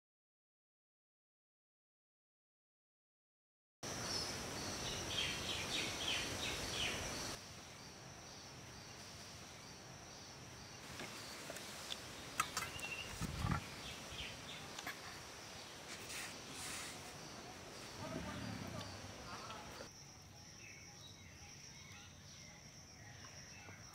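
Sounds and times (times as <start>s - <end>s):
high insect drone: 3.8s - 23.9s
birds chirping: 3.9s - 19.9s.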